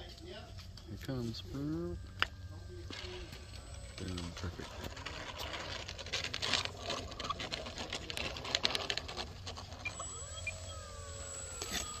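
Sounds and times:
model plane electric motor whining: 0:00.2 - 0:12.0
rapid irregular clicking and crackling: 0:02.2 - 0:10.6.

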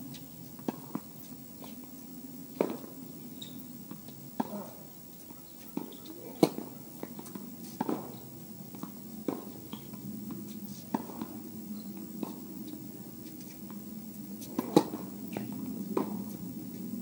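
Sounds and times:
low background noise: 0:00.0 - 0:17.0
tennis ball hit with rackets: 0:05.7 - 0:10.0, 0:14.4 - 0:16.3.

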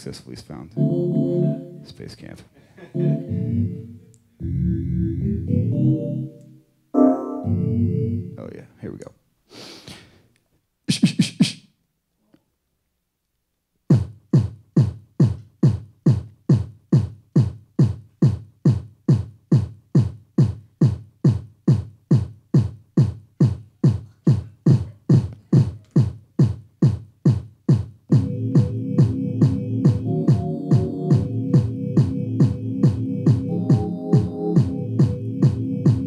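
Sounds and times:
sustained synthesizer chords: 0:00.8 - 0:01.9, 0:02.9 - 0:08.4, 0:28.1 - 0:36.0
electronic kick drum: 0:13.9 - 0:36.0.

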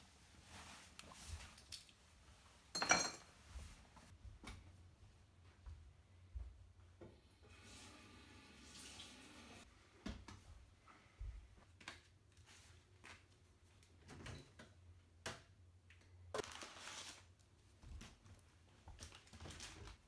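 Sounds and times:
faint footsteps on wooden floor: 0:03.6 - 0:07.1.

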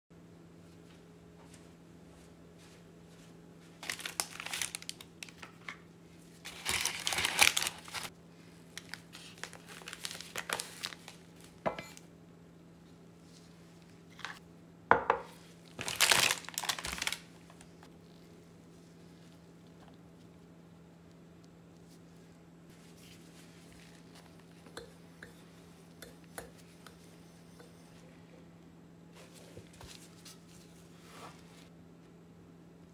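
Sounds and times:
faint steady hum: 0:00.2 - 0:32.9
paper bag crinkling: 0:03.8 - 0:05.5, 0:06.4 - 0:08.1, 0:08.7 - 0:11.6, 0:15.7 - 0:18.2.

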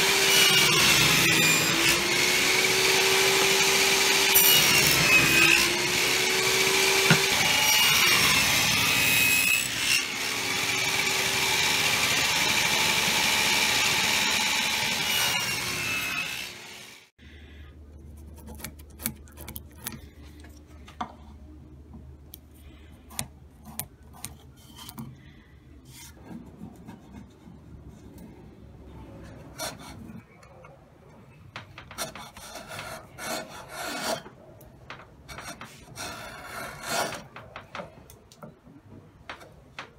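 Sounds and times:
table saw cutting wood: 0:00.0 - 0:17.1
chisel paring wood: 0:06.2 - 0:07.4
marking gauge scoring wood: 0:18.1 - 0:20.0, 0:31.9 - 0:34.2.

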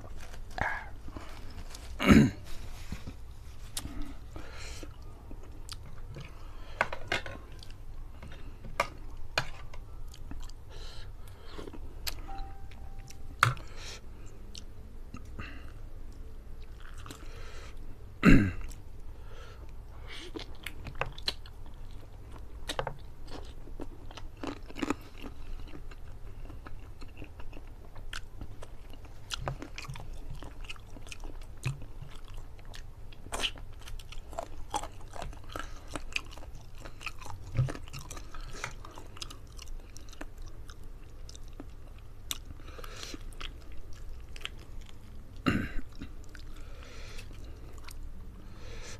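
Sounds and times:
wet chewing and crunching: 0:16.1 - 0:17.8, 0:20.2 - 0:48.1.

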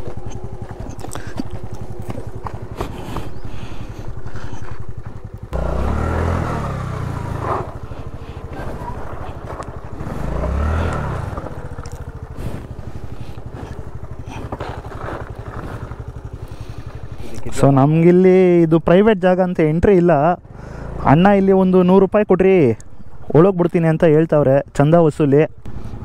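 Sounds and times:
scooter engine revving: 0:00.0 - 0:18.0, 0:20.4 - 0:21.2, 0:25.6 - 0:26.0.

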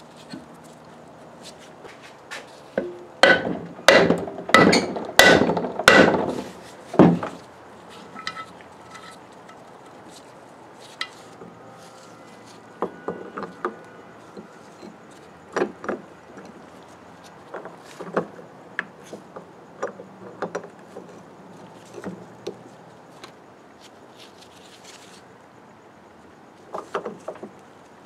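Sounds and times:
hammer striking steel: 0:02.8 - 0:07.3
metal parts clinking: 0:07.9 - 0:10.3.

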